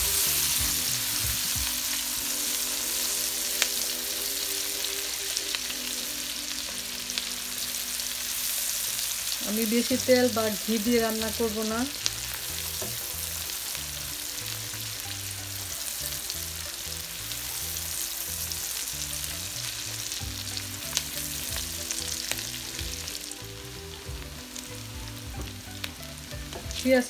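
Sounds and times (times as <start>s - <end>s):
onions sizzling in oil: 0.0s - 27.0s.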